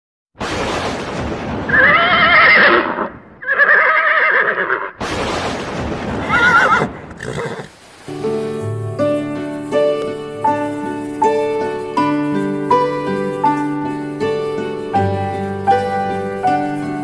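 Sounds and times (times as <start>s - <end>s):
horse whinnying: 1.7s - 5.0s, 6.2s - 7.7s
soft piano music: 8.0s - 17.0s.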